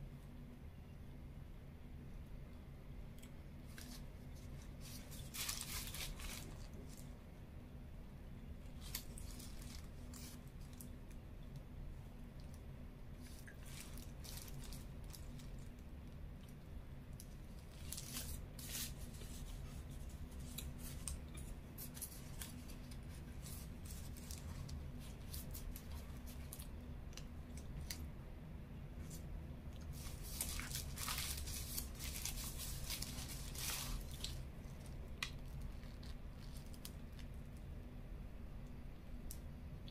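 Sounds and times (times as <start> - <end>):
low steady hum: 0.0 - 39.9
paper wrapper crinkling: 3.6 - 7.1, 8.6 - 11.0, 13.2 - 16.6, 17.2 - 28.1, 29.0 - 37.6.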